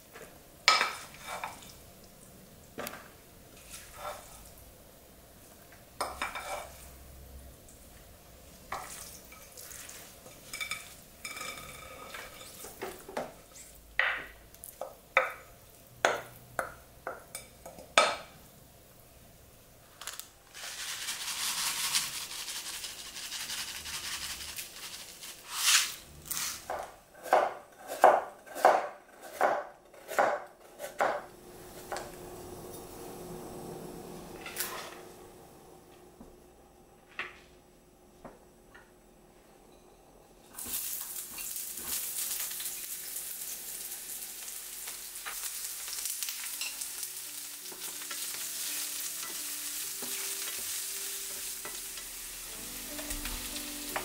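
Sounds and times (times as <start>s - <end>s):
steady hiss: 18.8s - 26.6s.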